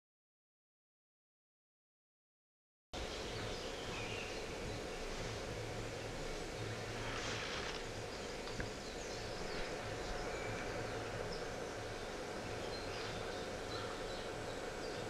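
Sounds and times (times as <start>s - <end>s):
low hum: 3.0s - 15.0s
steady hiss: 3.0s - 15.0s.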